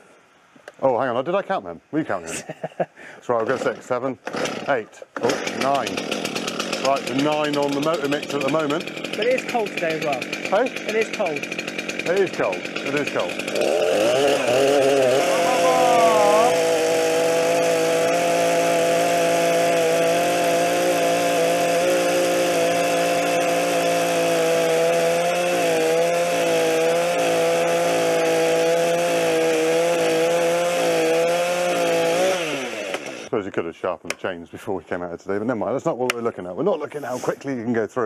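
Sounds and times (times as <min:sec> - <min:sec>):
chainsaw cutting log: 0:03.4 - 0:33.3.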